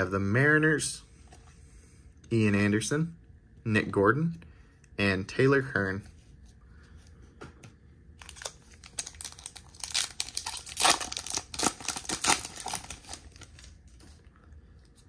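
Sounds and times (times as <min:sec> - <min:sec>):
foil wrapper tearing and crinkling: 0:08.2 - 0:13.8.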